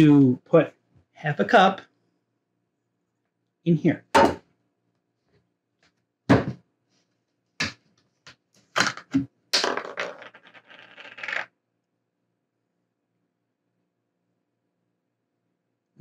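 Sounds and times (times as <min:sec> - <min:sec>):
kitchen containers knocking on counter: 0:04.2 - 0:04.4, 0:06.3 - 0:06.6.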